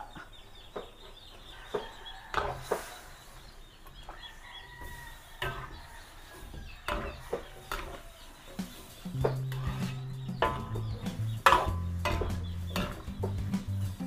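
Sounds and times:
chickens clucking: 0:00.0 - 0:14.0
utensils knocking against pot: 0:05.4 - 0:05.8, 0:06.8 - 0:08.0, 0:08.6 - 0:13.8.

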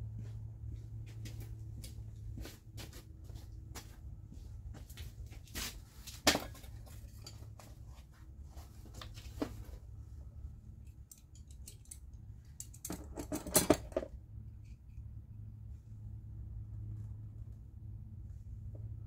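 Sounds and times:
metal hand tools clinking: 0:10.9 - 0:13.9.

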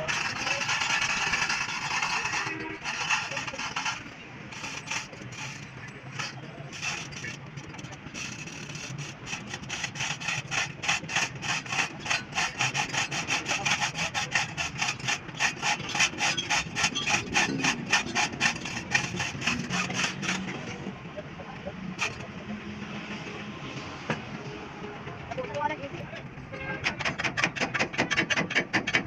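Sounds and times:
hand scraping on metal housing: 0:00.0 - 0:20.9, 0:22.0 - 0:22.4.

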